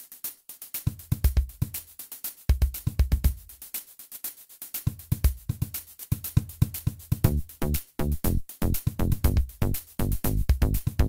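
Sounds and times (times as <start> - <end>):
drum-machine beat music: 0.0 - 11.0
kick drum thuds: 2.5 - 3.6, 7.2 - 11.0.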